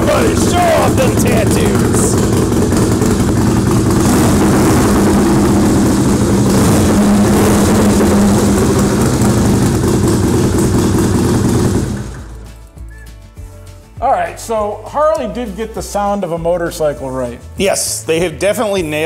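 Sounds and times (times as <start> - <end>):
motorcycle engine running: 0.0 - 12.7.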